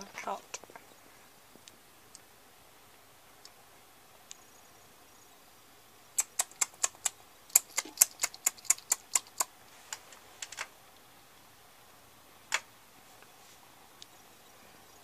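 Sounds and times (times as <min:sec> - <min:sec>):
sharp clicks: 0:06.2 - 0:09.5.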